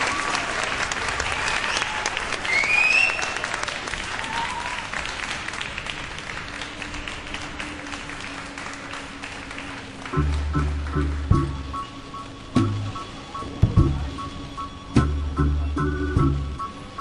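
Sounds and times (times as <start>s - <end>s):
audience applause and cheering: 0.0s - 12.5s
rising whistle: 2.4s - 3.4s
steady low tone: 10.0s - 17.0s.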